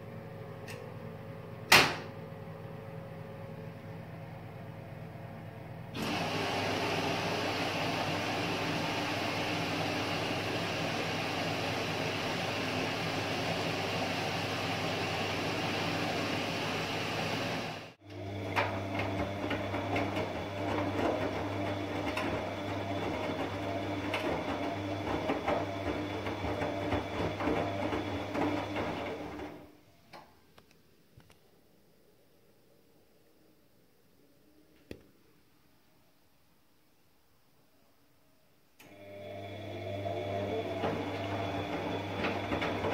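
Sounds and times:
washing machine motor hum: 0:02.4 - 0:29.8, 0:38.8 - 0:42.9
laundry tumbling and sloshing: 0:18.2 - 0:29.7, 0:40.2 - 0:42.9.

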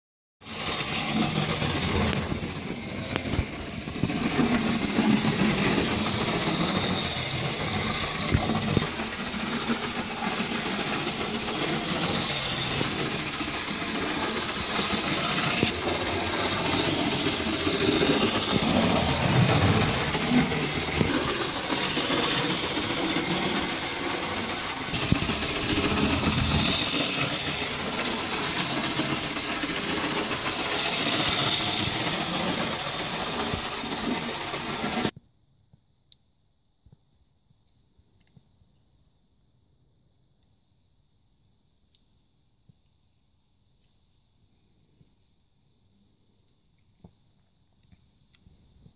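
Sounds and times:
model train motor whirring: 0:00.4 - 0:35.1
wheels running on track: 0:00.4 - 0:35.1.

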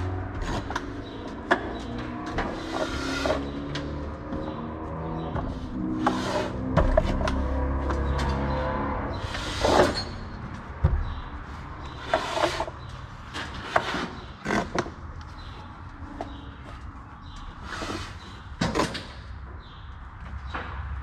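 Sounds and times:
drywall taping tool scrapes and knocks: 0:13.3 - 0:14.9.

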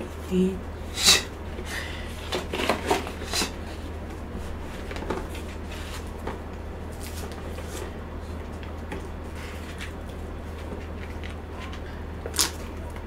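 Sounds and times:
paper rustling: 0:04.4 - 0:08.0.

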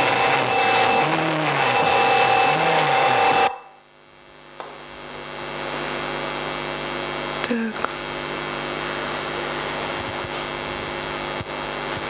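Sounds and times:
noisy drone with held tones: 0:00.0 - 0:04.3
faint hum: 0:00.0 - 0:12.0.

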